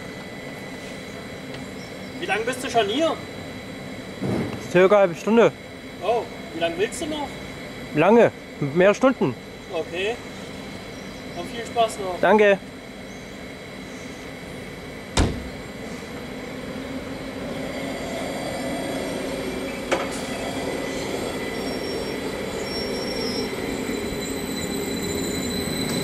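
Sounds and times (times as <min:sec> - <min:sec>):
electric train pulling away: 0:00.0 - 0:26.0.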